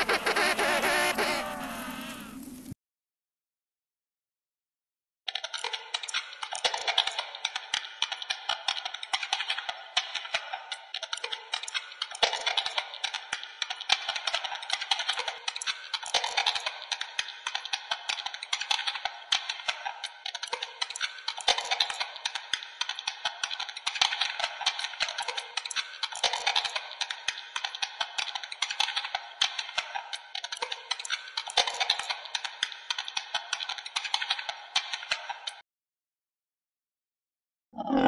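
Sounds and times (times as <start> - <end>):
rapid crackling and clicking: 5.3 - 35.6.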